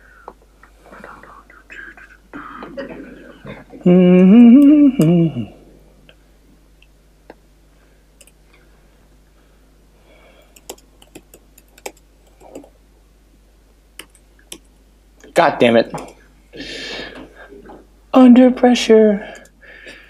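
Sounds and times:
man's drawn-out vocal sound: 2.4 - 5.6
laptop keystrokes: 10.6 - 12.7.

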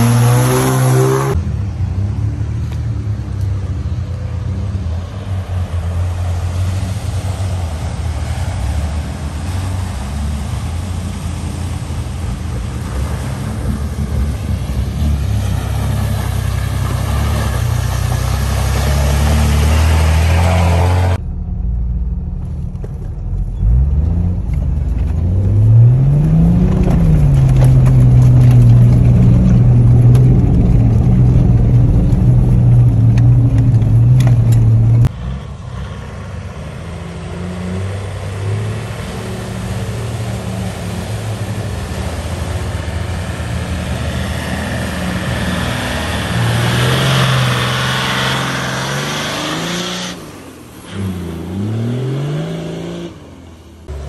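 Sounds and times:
vehicle engine revving: 0.0 - 2.7, 4.3 - 54.0
water rushing and splashing: 5.2 - 21.2, 26.0 - 53.0.

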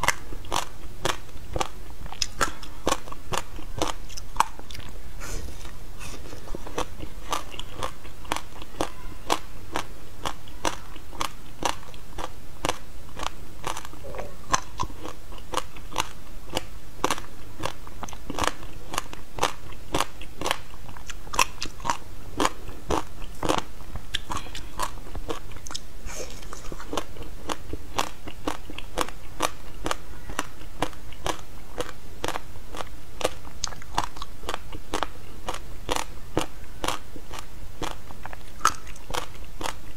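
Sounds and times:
person crunching shaved ice: 6.6 - 25.8, 26.4 - 39.9.

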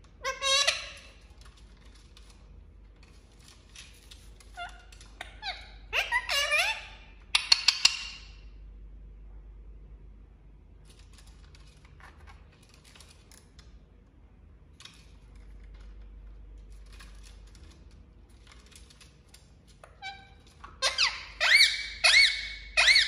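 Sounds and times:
parakeet shrill calls: 0.2 - 1.2, 4.6 - 8.1, 20.0 - 23.0.

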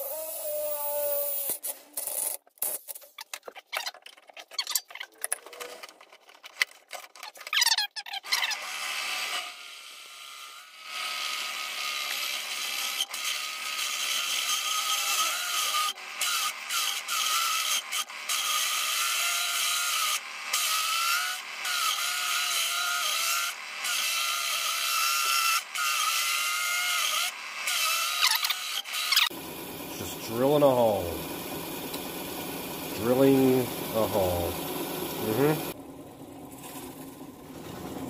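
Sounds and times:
hole saw cutting steel: 8.2 - 35.8.

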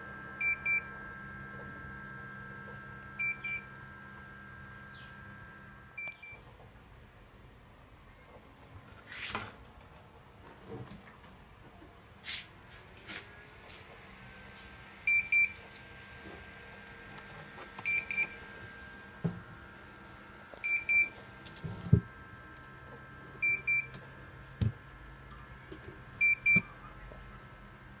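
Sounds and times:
buzzer double beep: 3.2 - 3.7, 26.2 - 26.7.

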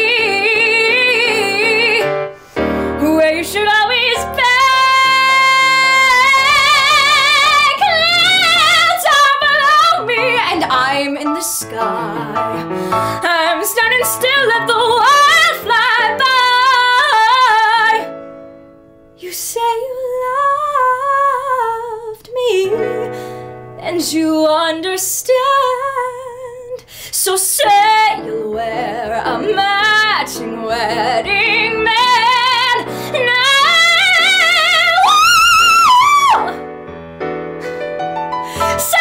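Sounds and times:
woman singing a ballad: 0.0 - 18.1, 19.2 - 36.7, 38.4 - 39.0
instrumental backing: 27.7 - 39.0.

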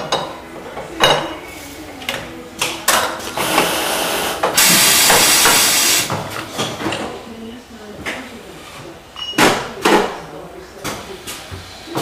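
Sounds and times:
compressed air hissing: 3.7 - 6.1.

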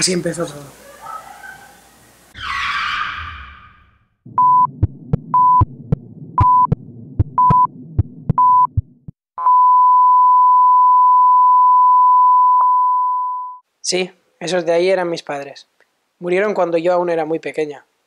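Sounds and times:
faint low rumble: 4.3 - 9.2
heartbeat thumps: 4.3 - 9.2
heart monitor beeping: 4.3 - 13.6.

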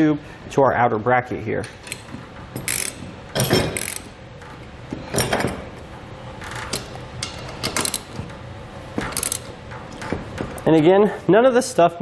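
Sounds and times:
ratchet clicking: 1.8 - 4.2, 6.5 - 8.2, 9.0 - 10.1.

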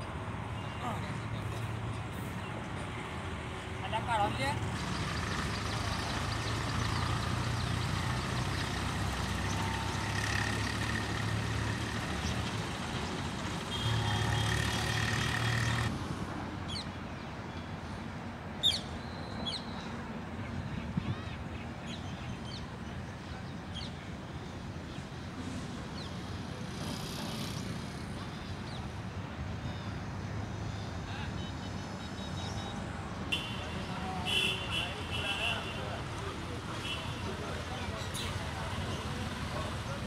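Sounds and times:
tractor diesel engine idling: 4.6 - 15.9.

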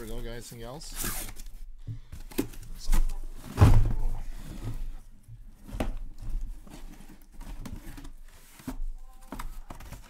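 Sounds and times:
cardboard scuffing and rustling: 2.4 - 5.0, 5.6 - 10.0.

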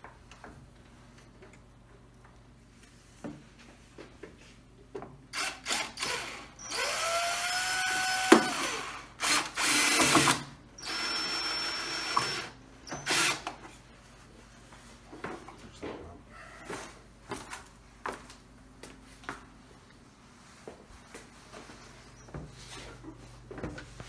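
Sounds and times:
cordless drill whine: 5.4 - 13.5.

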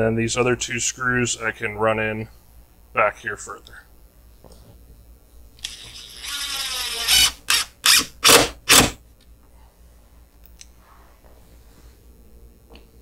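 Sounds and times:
cordless drill driving a screw: 5.6 - 9.0.

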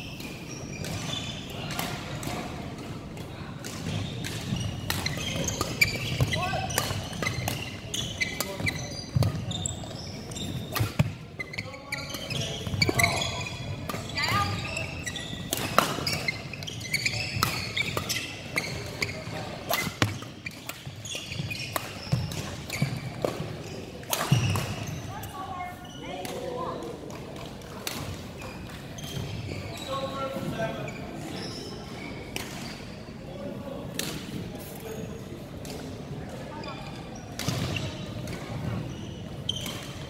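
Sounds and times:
shoe squeaks on court floor: 0.0 - 1.8, 3.8 - 26.2, 28.4 - 33.1, 34.6 - 35.4, 36.5 - 40.0
racket hitting shuttlecock: 10.6 - 11.2, 19.7 - 20.9.

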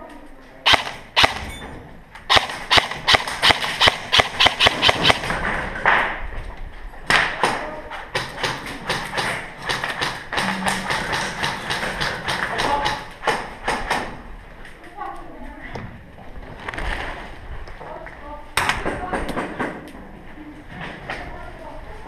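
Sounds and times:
airsoft gunfire cracks: 0.7 - 1.5, 2.3 - 5.3.

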